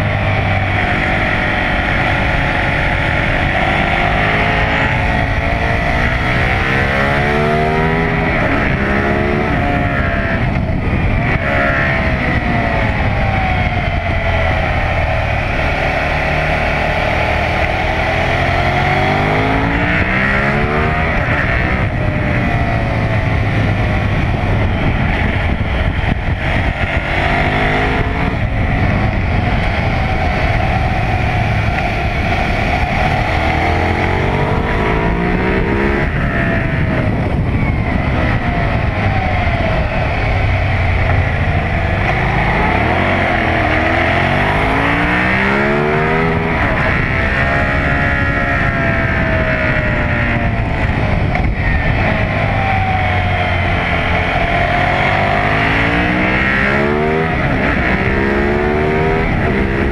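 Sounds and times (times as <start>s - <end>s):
motorcycle engine accelerating hard: 0.0s - 59.9s.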